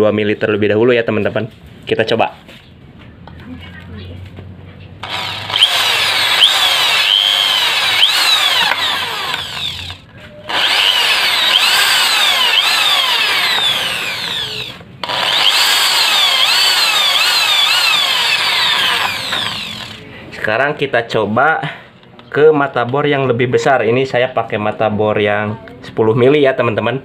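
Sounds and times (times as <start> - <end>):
drill bit screeching on steel: 5.0 - 20.0
drill motor running under load: 5.0 - 20.0.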